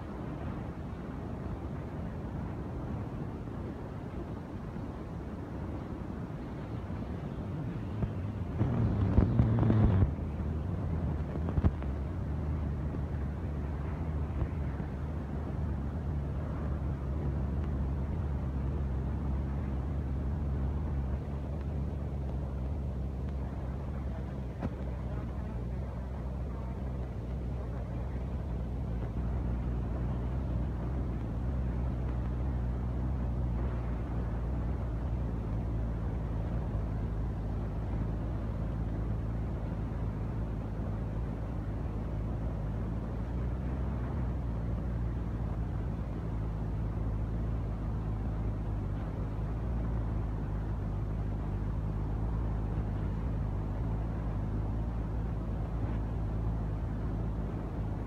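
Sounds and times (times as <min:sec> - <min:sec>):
steady low engine drone: 0:00.0 - 0:58.0.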